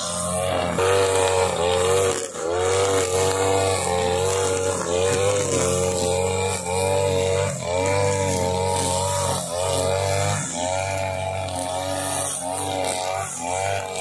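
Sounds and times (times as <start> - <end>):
brush cutter engine: 0.0 - 14.0
nylon line cutting grass: 0.0 - 14.0.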